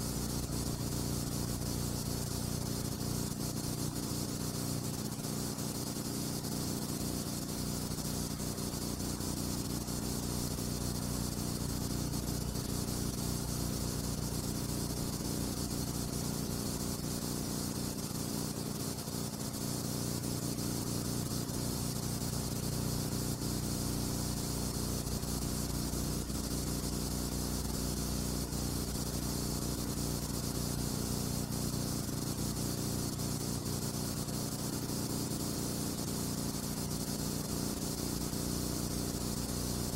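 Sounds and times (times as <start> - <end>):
steady hiss: 0.0 - 39.9.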